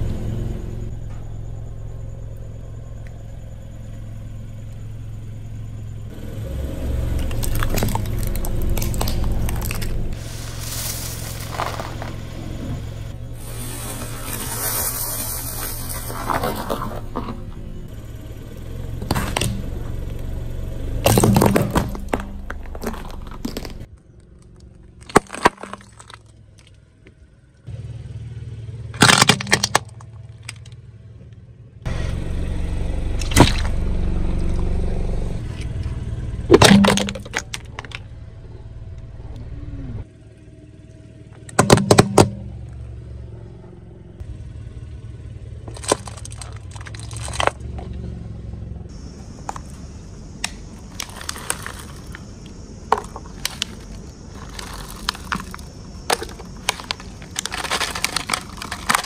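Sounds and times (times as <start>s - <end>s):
car engine low rumble: 0.0s - 59.0s
light bulbs cracking under tyre: 7.1s - 12.5s, 18.9s - 20.3s, 21.0s - 27.2s, 28.9s - 30.9s, 33.1s - 33.8s, 35.5s - 38.2s, 45.6s - 47.8s, 49.4s - 59.0s
candies rattling onto concrete: 53.0s - 59.0s.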